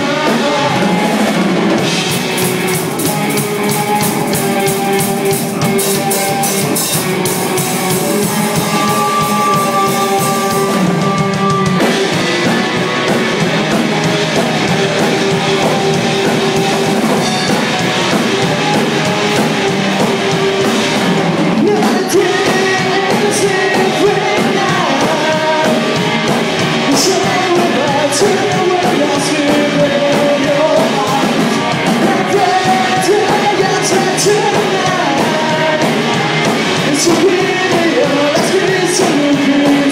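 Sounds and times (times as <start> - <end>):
person shouting singing: 0.0 - 1.5, 3.3 - 12.8, 21.6 - 26.1, 26.8 - 39.9
bass guitar: 0.0 - 39.9
distorted electric guitar: 0.0 - 39.9
drum kit: 0.0 - 39.9.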